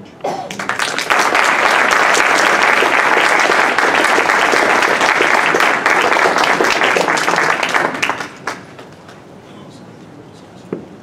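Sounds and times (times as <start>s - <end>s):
audience applauding: 0.5s - 9.2s.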